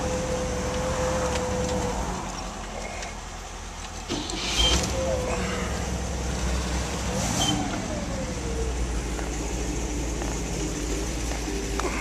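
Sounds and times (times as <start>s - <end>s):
car engine starting: 0.0s - 12.0s
low rumble: 4.8s - 12.0s.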